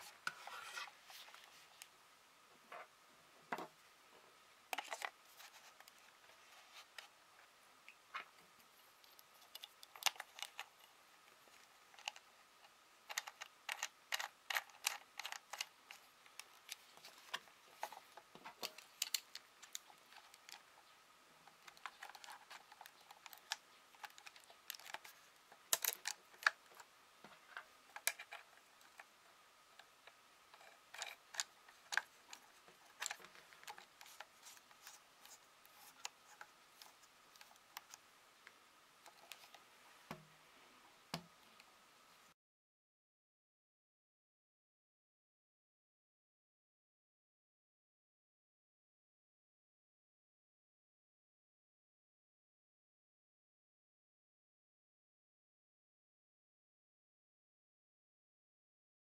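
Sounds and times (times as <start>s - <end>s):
plastic and metal parts clicking: 9.0s - 12.3s, 13.0s - 20.7s, 21.4s - 26.9s, 27.9s - 29.1s, 29.8s - 38.0s.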